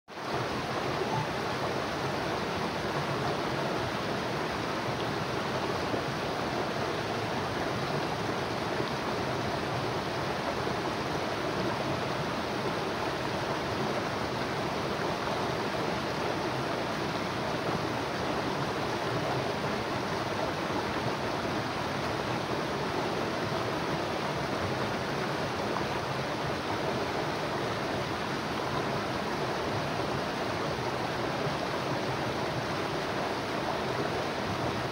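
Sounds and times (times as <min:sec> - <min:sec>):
river water rushing: 0:00.1 - 0:34.9.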